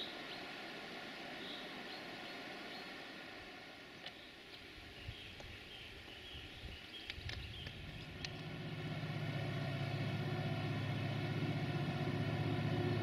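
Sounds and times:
diesel locomotive engine throbbing: 7.6 - 13.0.

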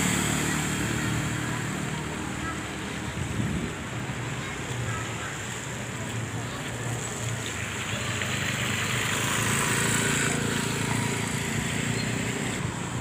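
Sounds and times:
vehicle engine passing: 7.3 - 13.0.

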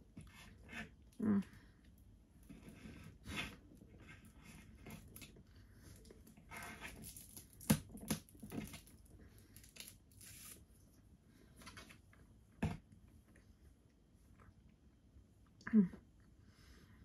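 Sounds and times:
plastic wrapper crinkling and tearing: 6.9 - 10.6.

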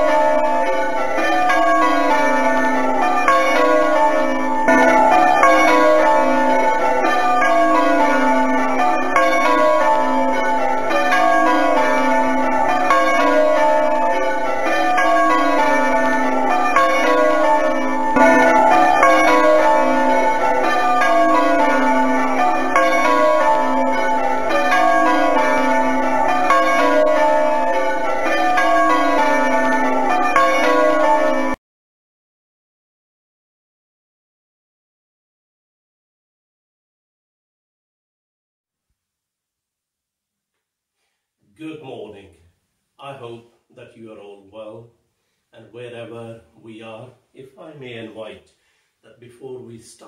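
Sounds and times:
church bells ringing: 0.0 - 31.6.

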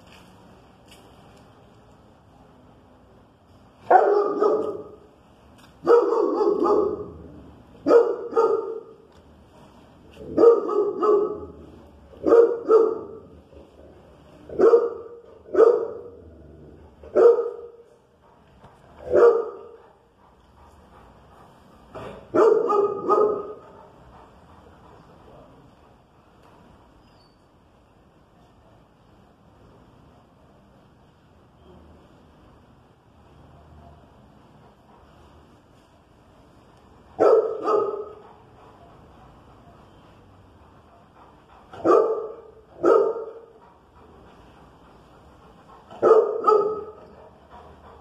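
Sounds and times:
dog barking: 3.9 - 5.1, 5.8 - 7.2, 7.8 - 9.0, 10.2 - 11.6, 12.2 - 13.3, 14.5 - 16.2, 17.1 - 17.8, 19.0 - 19.9, 22.3 - 23.8, 37.2 - 38.2, 41.8 - 43.6, 45.9 - 47.2.

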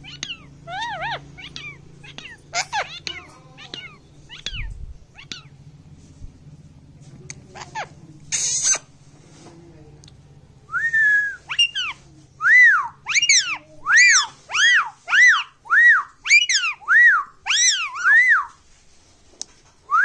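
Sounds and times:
parakeet chirping: 0.0 - 5.6, 11.4 - 12.0, 12.6 - 18.4
parakeet squawking: 0.0 - 5.6, 7.5 - 8.9, 11.4 - 12.0, 12.6 - 18.5
harsh bird noise: 0.0 - 5.8, 11.4 - 18.6.

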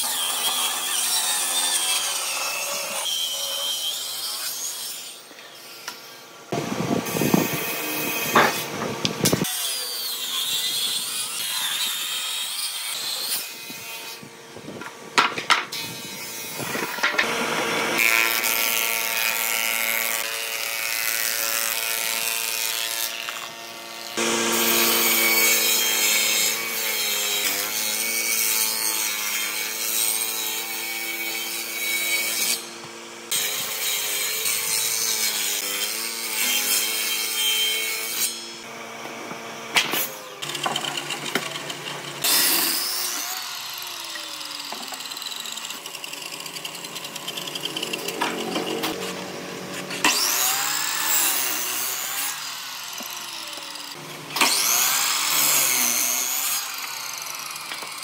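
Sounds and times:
table saw cutting board: 0.0 - 58.0
thickness planer cutting board: 6.5 - 9.5, 14.8 - 20.2, 39.0 - 52.3.

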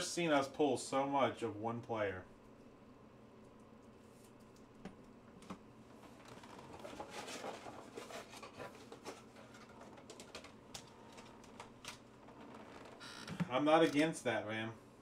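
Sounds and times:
card packs crinkling and rustling: 6.1 - 12.6.

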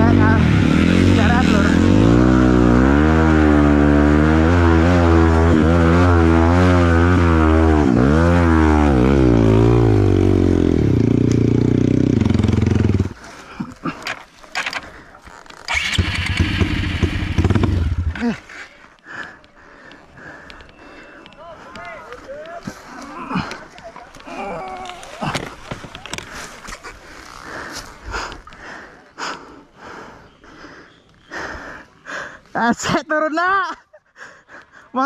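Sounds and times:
dirt bike engine revving: 0.0 - 13.2, 15.7 - 18.4.

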